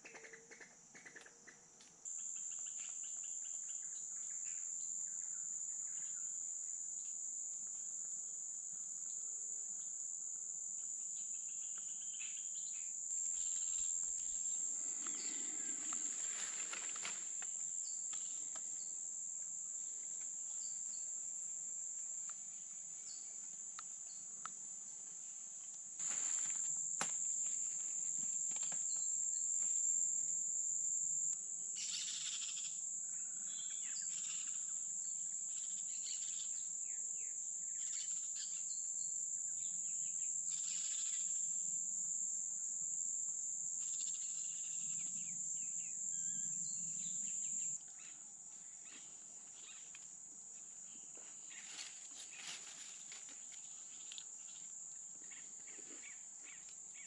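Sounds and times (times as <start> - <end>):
high-pitched insect drone: 8.7 - 23.4, 26.0 - 57.0
leaves rustling and handling: 15.8 - 17.5, 26.0 - 26.7, 51.5 - 54.2.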